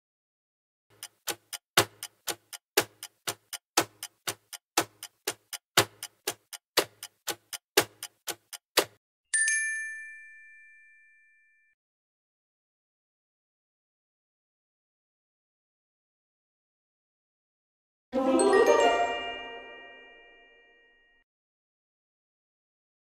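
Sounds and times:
clock ticking: 0.9s - 9.0s
bell-like ding: 9.4s - 11.8s, 18.8s - 21.1s.

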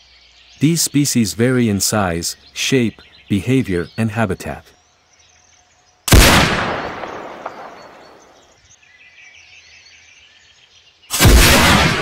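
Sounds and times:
gunshot with echo: 6.1s - 8.2s, 11.1s - 12.0s.

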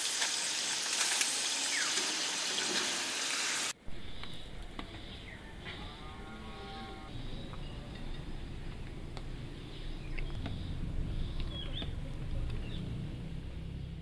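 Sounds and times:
hot oil sizzling: 0.0s - 3.8s.

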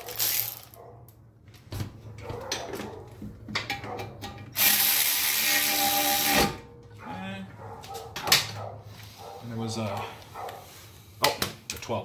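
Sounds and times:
tools and parts clinking: 0.0s - 1.2s, 2.3s - 4.7s
power tool driving a bolt: 4.5s - 6.6s.

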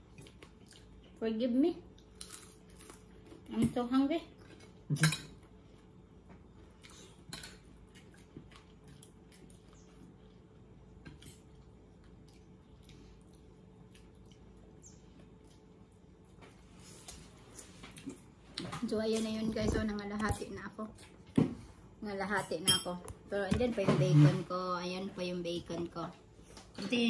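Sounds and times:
eating noises: 6.6s - 18.7s.

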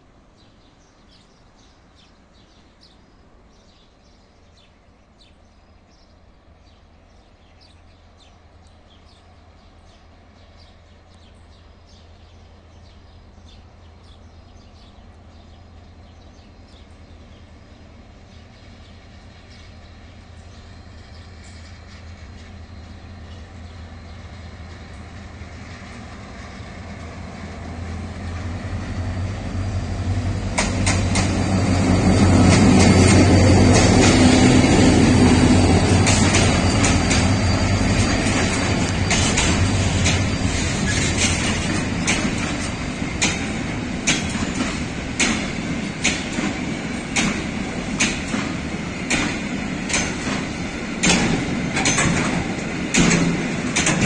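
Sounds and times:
diesel locomotive engine: 4.6s - 54.0s
wheels clacking over rail joints: 30.2s - 54.0s.

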